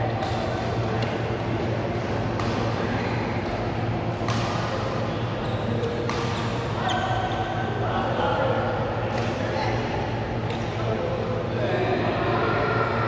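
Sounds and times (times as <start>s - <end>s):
steady background hum: 0.0s - 13.0s
racket striking shuttlecock: 2.0s - 2.8s, 3.4s - 4.8s, 5.8s - 6.5s.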